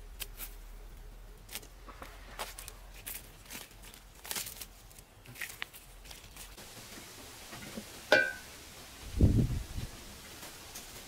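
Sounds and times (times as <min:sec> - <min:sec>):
soft rustles: 0:01.5 - 0:07.9
metal pot lid clanking: 0:08.1 - 0:08.5.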